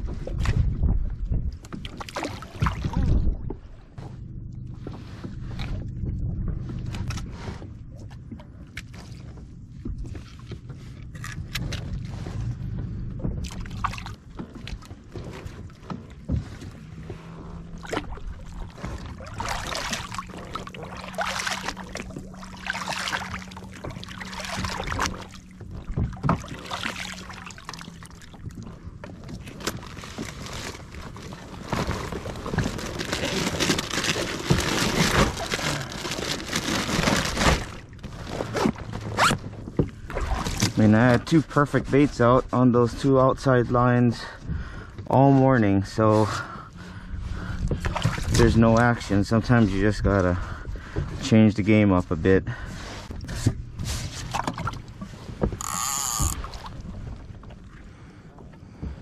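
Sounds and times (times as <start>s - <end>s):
water splashing and sloshing: 0.0s - 59.0s
rustling of gear bag: 29.3s - 39.6s.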